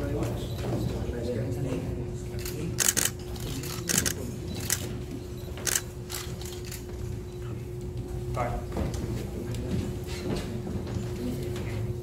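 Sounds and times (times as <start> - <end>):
steady low hum: 0.0 - 12.0
camera shutters clicking: 2.4 - 4.9, 5.6 - 6.8.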